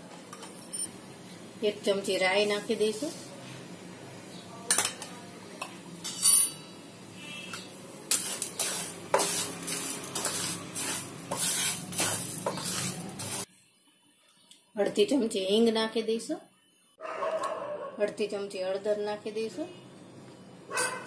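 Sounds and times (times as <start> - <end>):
spatula scraping lentils in pan: 8.1 - 13.5.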